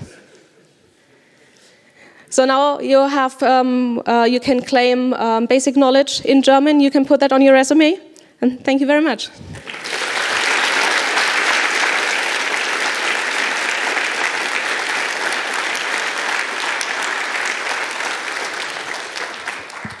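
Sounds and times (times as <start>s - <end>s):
audience applauding: 9.6s - 20.0s.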